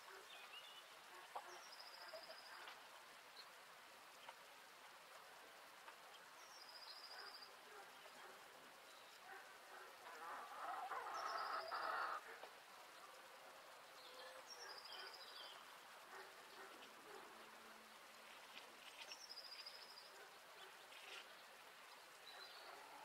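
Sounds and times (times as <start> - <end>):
hen calling: 10.2 - 12.2.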